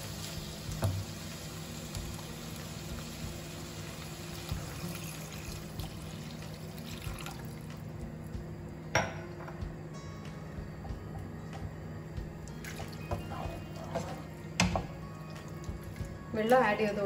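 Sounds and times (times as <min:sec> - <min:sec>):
liquid pouring into hot pan: 0:00.0 - 0:07.8.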